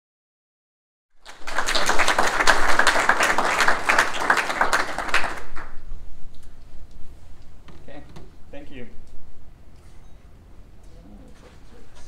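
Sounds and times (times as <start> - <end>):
audience applause: 1.2 - 5.8.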